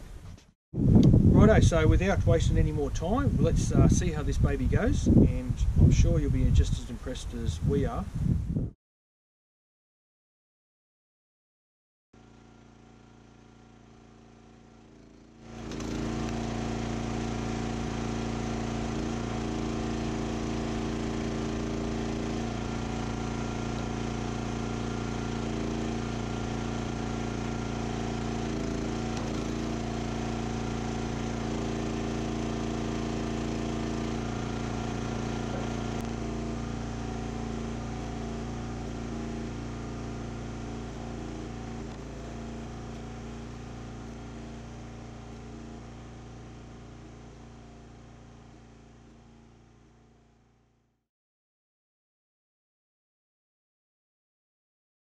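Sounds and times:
log splitter engine running: 12.2s - 50.7s.

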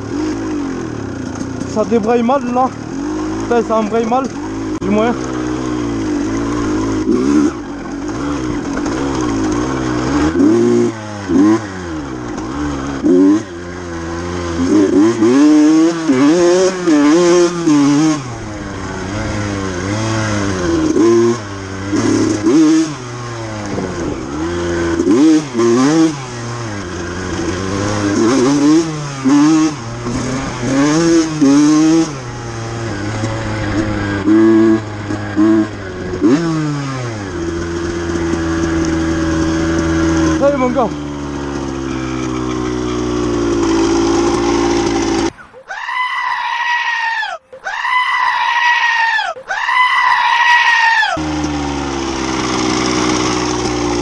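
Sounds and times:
dirt bike engine revving: 0.0s - 45.5s, 49.7s - 54.0s.

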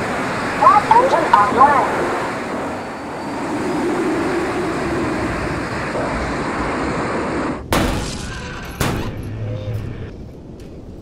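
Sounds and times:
steady rushing noise: 0.0s - 7.8s.

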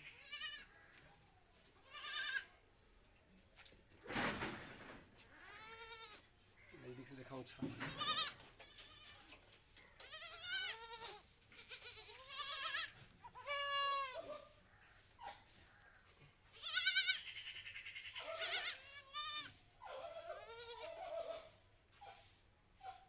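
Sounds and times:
goat kid bleating: 0.0s - 0.9s, 1.7s - 2.6s, 5.3s - 6.3s, 7.8s - 9.4s, 10.0s - 14.3s, 16.5s - 21.4s.

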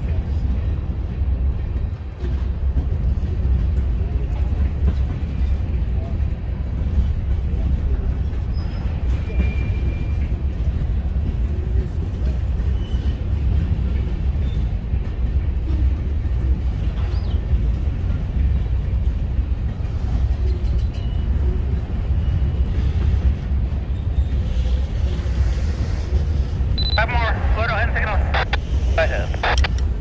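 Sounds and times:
steel wheels rumbling on rails: 0.0s - 30.0s
faint high wheel squeals: 8.5s - 10.2s.

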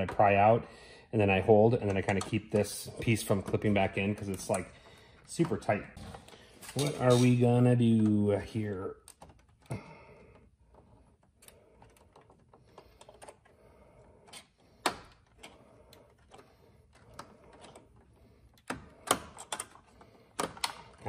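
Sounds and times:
tools prying plastic clips: 18.6s - 21.0s.

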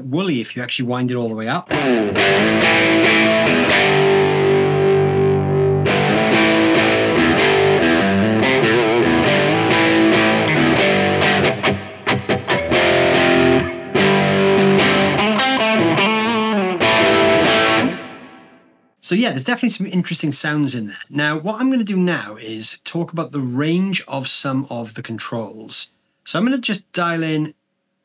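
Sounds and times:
distorted electric guitar chords: 1.7s - 18.8s.

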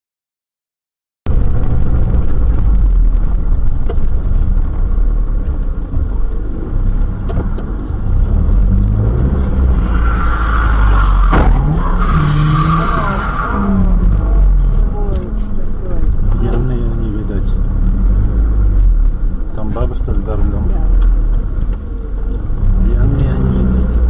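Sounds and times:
car engine and road noise: 1.3s - 24.0s
high squeal: 9.6s - 14.1s.

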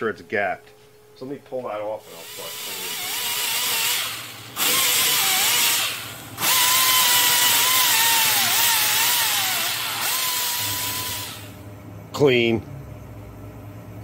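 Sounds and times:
pneumatic air ratchet whining: 2.2s - 11.6s.

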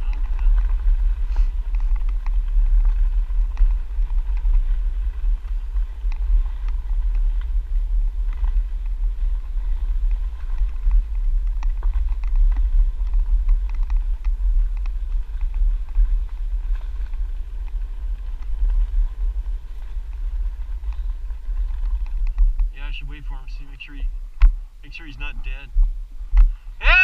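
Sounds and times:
bike wheels rattling on gravel: 0.0s - 27.0s
wind buffeting microphone: 0.0s - 27.0s.

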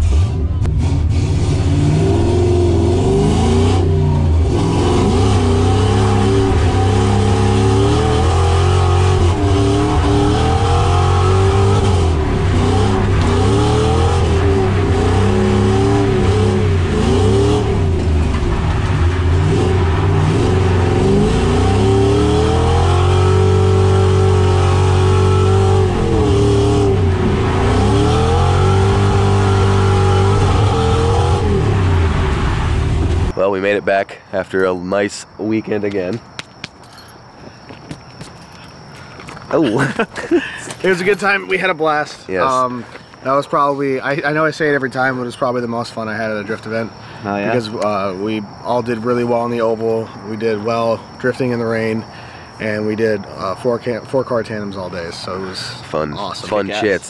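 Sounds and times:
car engine revving: 0.0s - 33.4s.

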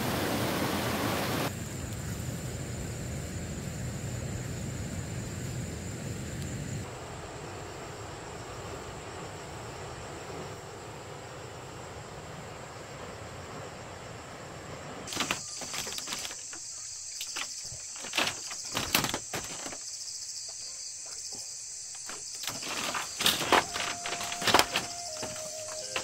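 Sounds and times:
crickets chirring: 0.0s - 26.0s
knocks and clicks of handling: 15.1s - 19.8s, 21.9s - 26.0s.

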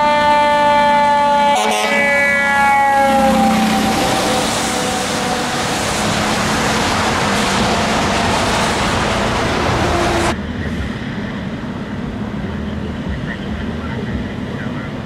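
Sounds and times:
siren warning tone: 0.0s - 8.5s
fire truck engine and road noise: 0.0s - 15.0s
vehicle noise: 1.3s - 15.0s.

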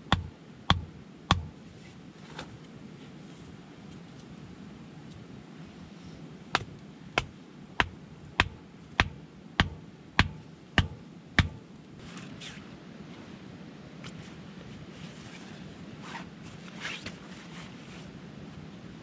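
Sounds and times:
stone knocking wooden stake: 0.1s - 1.5s, 6.6s - 11.6s
faint rustle: 1.6s - 7.0s, 11.6s - 19.0s.

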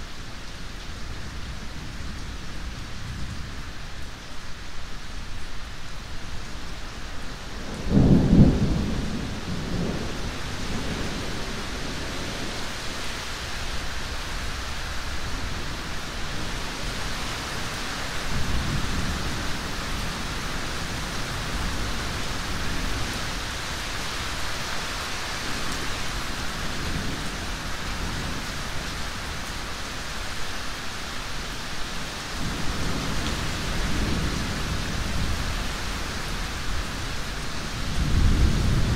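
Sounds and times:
heavy rain: 0.0s - 38.9s
thunderclap and rumbles: 7.6s - 12.6s, 32.4s - 38.9s.

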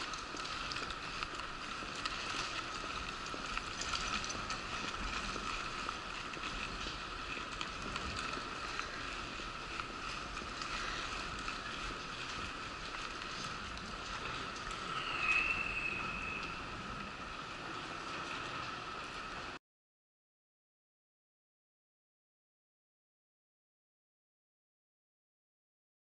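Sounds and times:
small clicks and rattles: 0.0s - 14.9s
wheelchair rolling whine: 0.0s - 19.6s.

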